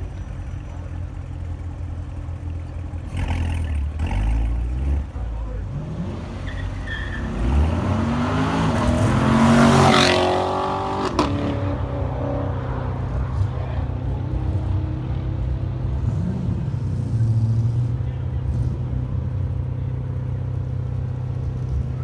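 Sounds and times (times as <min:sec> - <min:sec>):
sports car accelerating past: 0:07.2 - 0:13.5.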